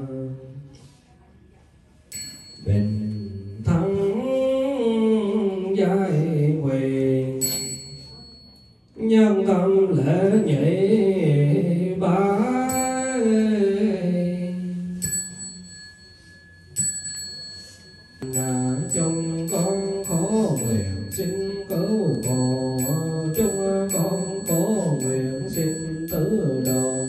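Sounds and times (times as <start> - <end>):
bell ringing: 2.1 - 4.4, 7.4 - 9.0, 12.6 - 27.0.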